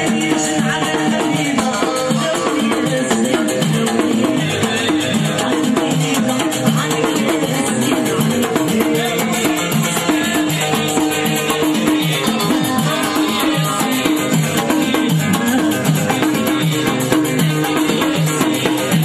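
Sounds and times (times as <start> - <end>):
drums beaten with sticks: 0.0 - 19.0
frame drum: 0.0 - 19.0
repeating melody: 5.6 - 19.0.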